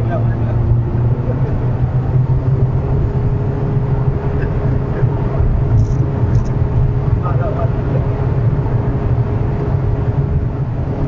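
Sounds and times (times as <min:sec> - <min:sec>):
car engine at high speed: 0:00.0 - 0:11.0
road and wind noise: 0:00.0 - 0:11.0.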